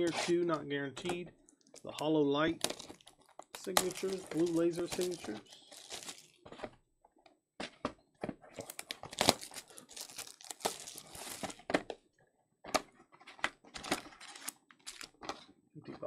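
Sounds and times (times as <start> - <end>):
plastic wrap crinkling: 2.6 - 6.4, 8.6 - 11.6, 13.9 - 15.2.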